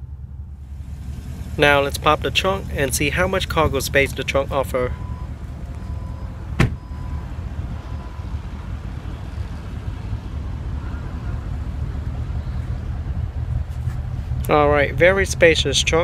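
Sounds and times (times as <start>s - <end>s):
low rumble: 0.0s - 16.0s
car tailgate rising: 5.8s - 7.2s.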